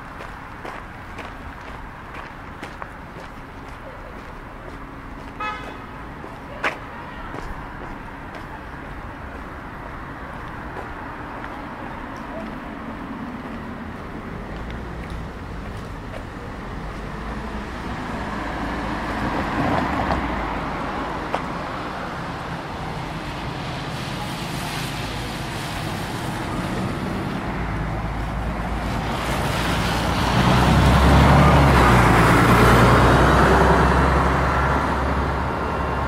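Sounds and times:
traffic with tyre hiss: 0.0s - 36.0s
large vehicle deep engine passing: 7.6s - 36.0s.

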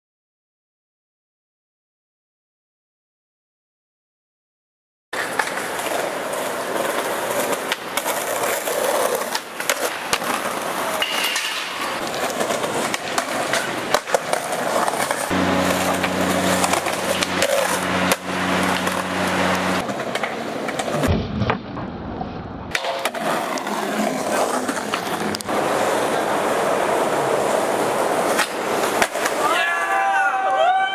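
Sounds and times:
skateboard wheels rolling on concrete: 5.1s - 30.9s
skateboard clacks: 5.2s - 17.8s, 19.8s - 21.8s, 22.7s - 29.6s.

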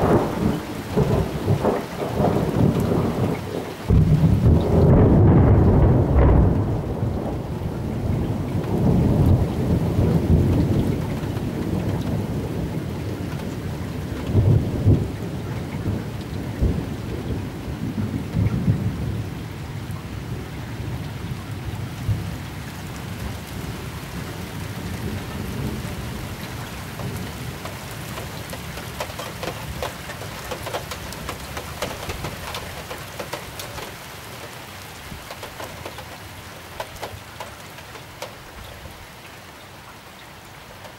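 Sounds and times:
rolling thunder: 0.0s - 22.5s, 23.1s - 34.5s
heavy rain: 0.0s - 40.9s
raindrops pattering: 0.0s - 40.9s.

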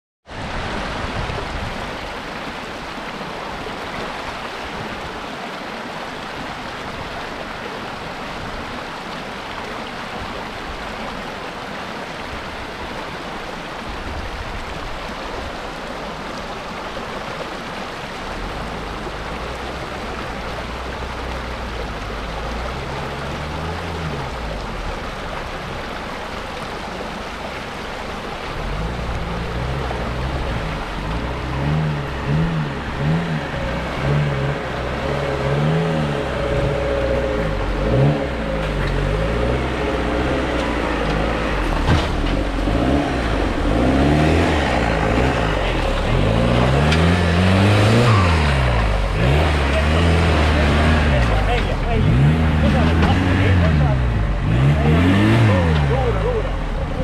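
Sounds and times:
stream running over rocks: 0.2s - 57.0s
off-road vehicle engine revving: 18.2s - 26.3s, 28.4s - 57.0s.

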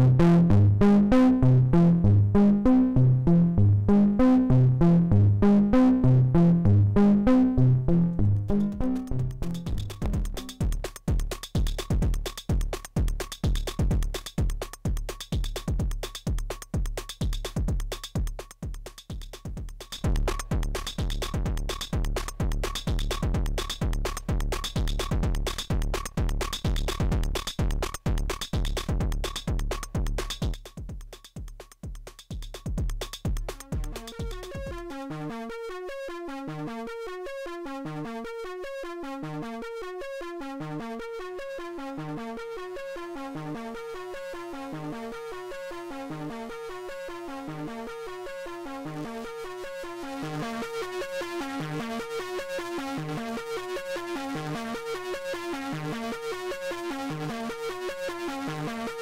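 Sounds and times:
synthesizer bass sequence: 0.0s - 59.0s
distorted kick drums: 6.2s - 35.3s
hi-hat ticks: 8.4s - 34.8s.

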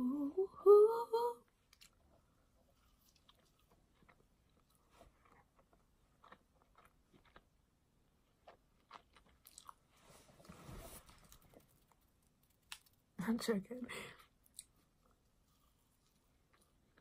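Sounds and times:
chewing with wet mouth clicks: 2.8s - 7.5s.

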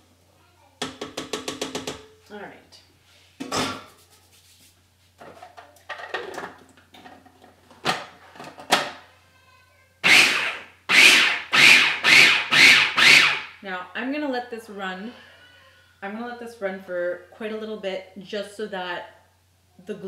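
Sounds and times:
kitchenware clattering: 3.4s - 4.0s, 5.2s - 9.0s
food processor pulsing: 10.0s - 13.5s.

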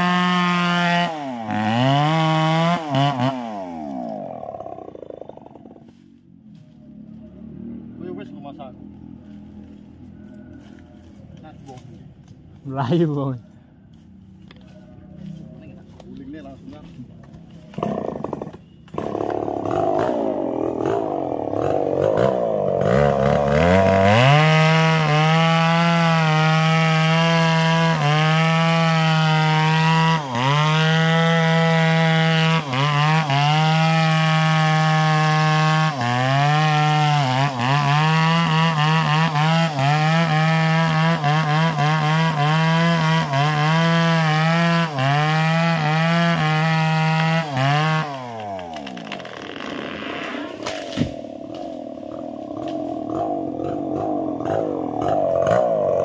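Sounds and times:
chainsaw cutting through tree: 0.0s - 6.1s, 17.6s - 56.0s.

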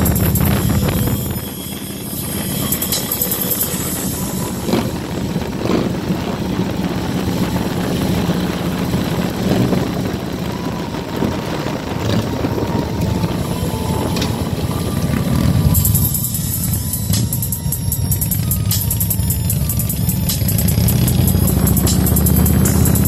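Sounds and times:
motorcycle engines running: 0.0s - 23.0s
road and wind noise: 0.0s - 23.0s.

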